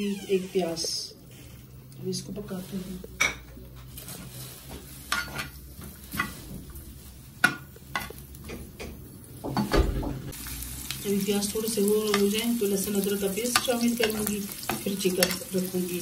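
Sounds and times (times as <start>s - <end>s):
onions frying: 0.4s - 16.0s
spoon scraping and clinking pan: 5.1s - 6.4s.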